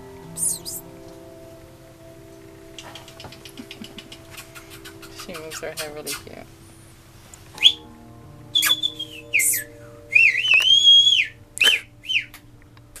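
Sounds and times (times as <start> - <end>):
person whistling: 7.6 - 7.8, 8.6 - 12.3.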